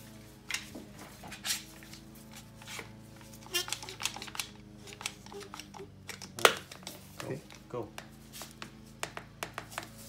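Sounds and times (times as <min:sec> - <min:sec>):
lawnmower engine drone: 0:00.0 - 0:10.0
clamps clicking and knocking: 0:03.4 - 0:07.7.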